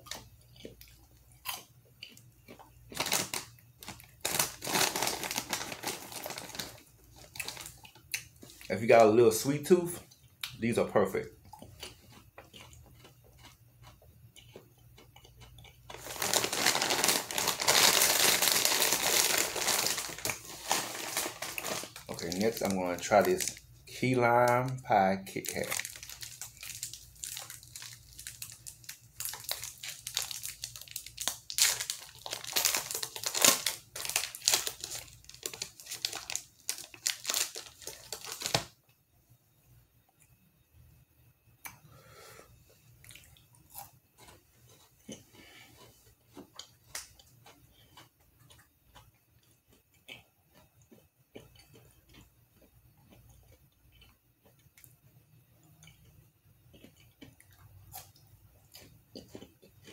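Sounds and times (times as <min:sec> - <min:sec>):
candy wrapper tearing and crinkling: 0:02.9 - 0:08.6, 0:15.9 - 0:38.8.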